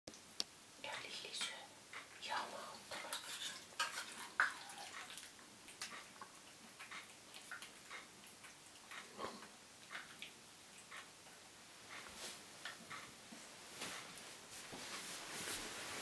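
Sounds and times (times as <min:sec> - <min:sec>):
metal spoon scraping a tin: 0:03.0 - 0:04.4.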